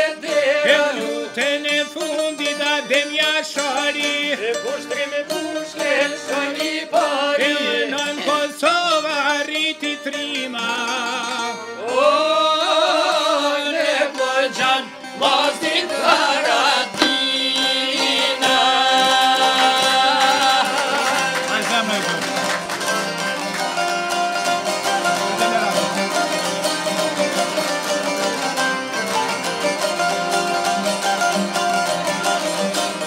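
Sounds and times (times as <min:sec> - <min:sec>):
man singing with vibrato: 0:00.0 - 0:22.2
plucked lutes: 0:13.8 - 0:33.0.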